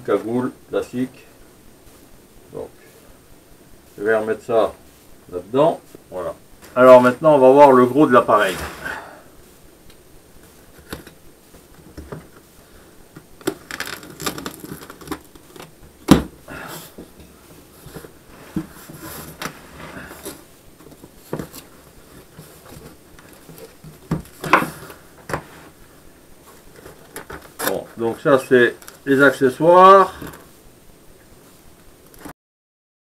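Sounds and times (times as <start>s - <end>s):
box rustles scrapes and knocks: 8.1s - 9.2s, 13.5s - 25.8s.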